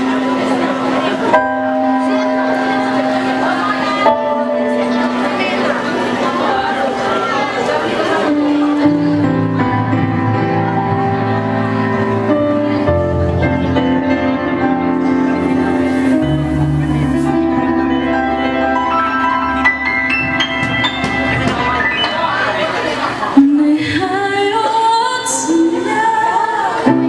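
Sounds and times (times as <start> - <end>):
rising keyboard notes: 0.0 - 23.5
keyboard chords: 0.0 - 27.0
bass line: 8.5 - 23.4.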